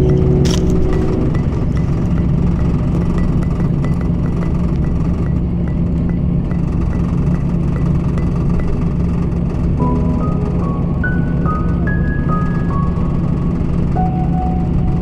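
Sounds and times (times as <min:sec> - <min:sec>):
faint regular ticking: 0:00.0 - 0:10.4
road and engine rumble: 0:00.0 - 0:15.0.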